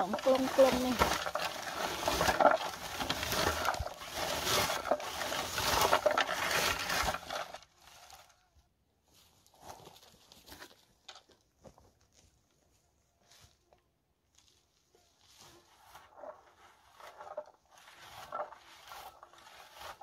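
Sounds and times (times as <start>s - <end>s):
berry picker rustling through bushes: 0.0s - 8.3s, 14.3s - 20.0s.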